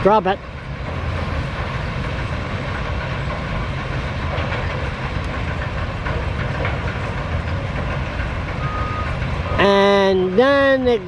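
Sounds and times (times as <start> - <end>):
diesel engine: 0.0 - 11.0
sawmill machinery rumble: 0.0 - 11.0
light knocks and clatter: 2.2 - 8.6.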